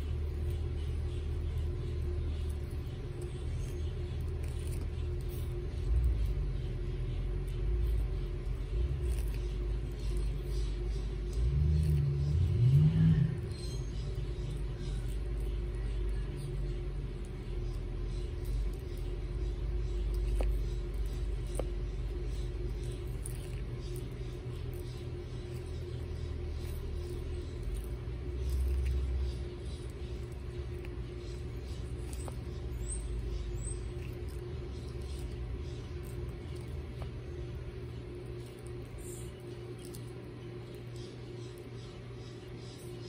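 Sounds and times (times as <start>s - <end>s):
low rumble: 0.0s - 41.8s
tortoises chewing lettuce: 0.0s - 43.0s.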